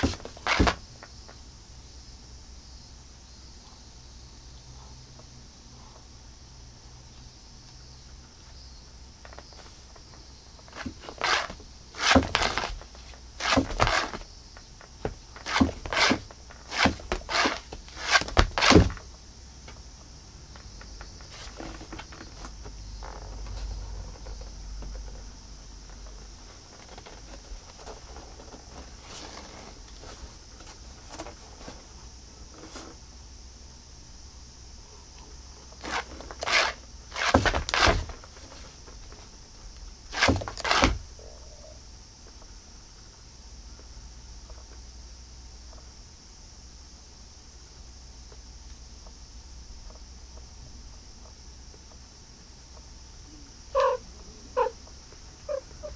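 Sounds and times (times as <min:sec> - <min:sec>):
scraping rustles on cardboard: 0:00.0 - 0:00.8, 0:09.2 - 0:19.0, 0:21.2 - 0:22.5, 0:26.4 - 0:33.0, 0:35.8 - 0:39.3, 0:40.1 - 0:41.0
cat scrambling in cardboard box: 0:10.7 - 0:14.2.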